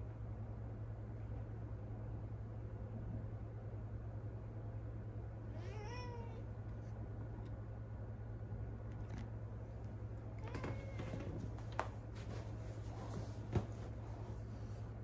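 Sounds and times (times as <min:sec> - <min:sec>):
steady low hum: 0:00.0 - 0:15.0
cat meowing: 0:05.6 - 0:06.4, 0:10.3 - 0:11.6.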